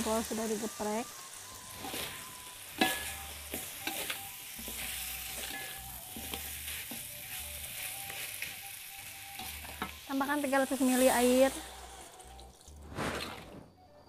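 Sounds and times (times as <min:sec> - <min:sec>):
paste sizzling in a wok: 0:00.0 - 0:13.5
metal spatula scraping: 0:01.7 - 0:10.1.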